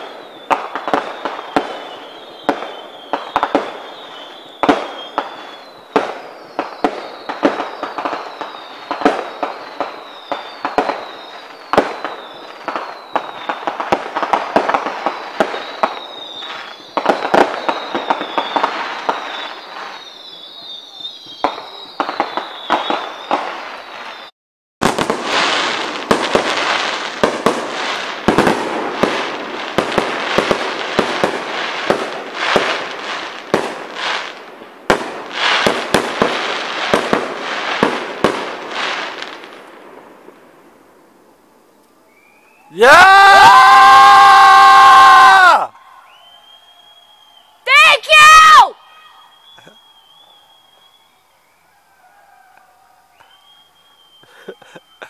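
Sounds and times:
fireworks whistles falling: 0:00.0 - 0:40.8, 0:41.6 - 0:55.0
fireworks bangs and crackling: 0:00.0 - 0:51.6.

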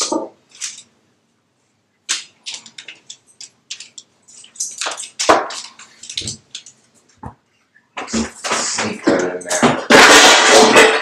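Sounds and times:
paper crinkling and rustling: 0:02.1 - 0:07.1.

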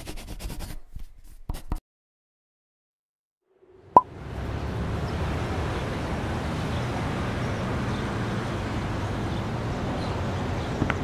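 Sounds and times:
city traffic rumble: 0:03.6 - 0:11.0.

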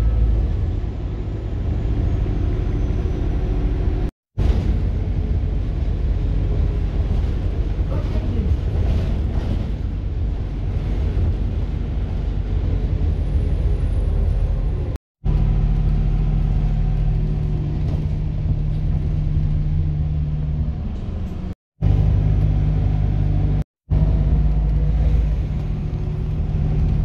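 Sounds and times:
bus engine drone: 0:00.0 - 0:27.0
road rumble: 0:00.0 - 0:27.0.

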